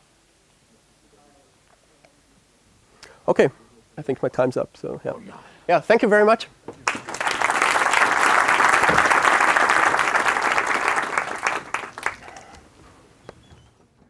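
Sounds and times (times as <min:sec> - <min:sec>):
audience applause: 0:06.8 - 0:12.7.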